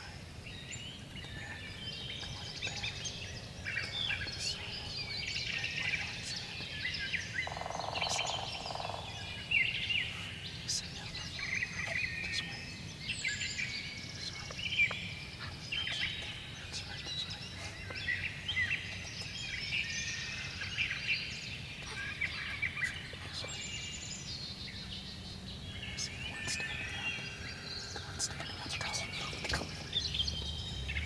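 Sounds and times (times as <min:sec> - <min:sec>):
songbirds singing: 0:00.0 - 0:31.0
low outdoor rumble: 0:08.0 - 0:31.0.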